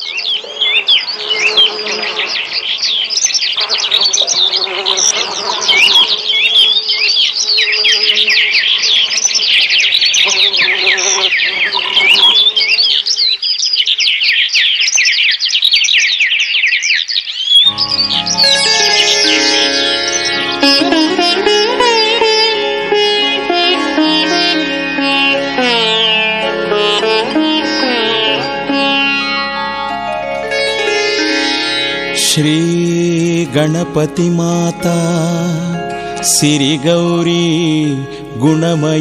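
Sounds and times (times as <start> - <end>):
small birds chirping: 0.0 - 22.5
low pitched sound: 17.7 - 38.1.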